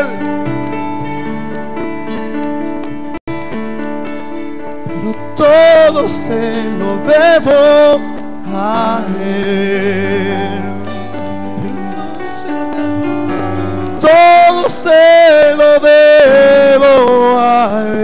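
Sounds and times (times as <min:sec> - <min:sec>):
man singing with vibrato: 0:00.0 - 0:02.7, 0:04.6 - 0:18.0.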